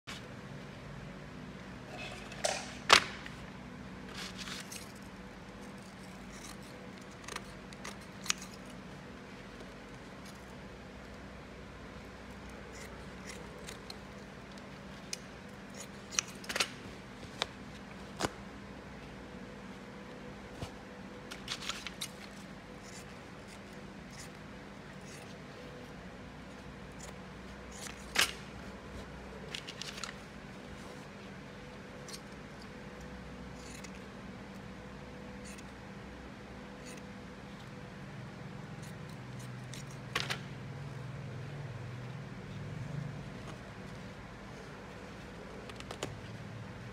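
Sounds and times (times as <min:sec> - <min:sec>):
scissors snipping: 0:05.6 - 0:08.8, 0:12.4 - 0:16.8.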